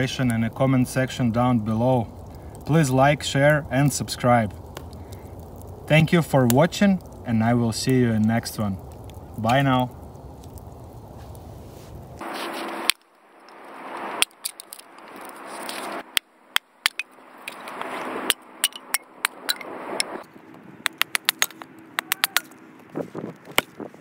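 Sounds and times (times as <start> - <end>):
axe splitting wood: 20.8 - 22.5.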